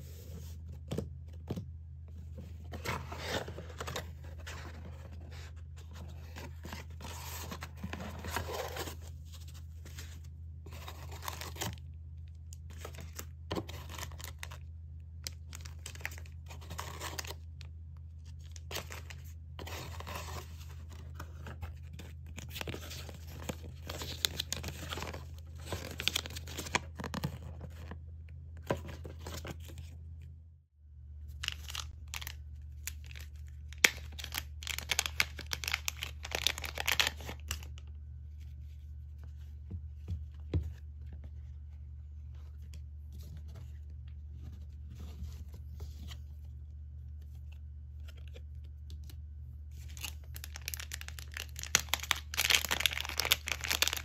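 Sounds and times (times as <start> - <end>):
foil bags and paper rustling: 49.8 - 54.0.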